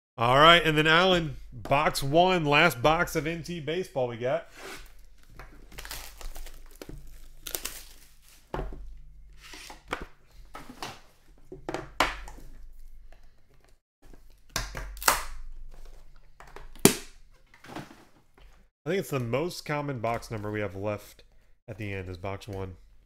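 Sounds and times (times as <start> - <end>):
plastic wrap crinkling and tearing: 4.9 - 8.5.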